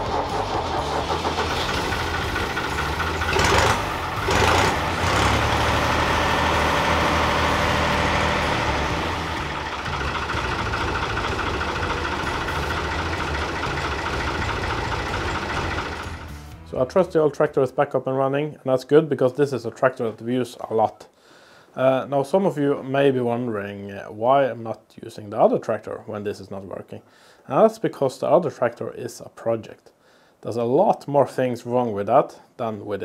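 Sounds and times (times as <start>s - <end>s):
tractor diesel engine running: 0.0s - 16.8s.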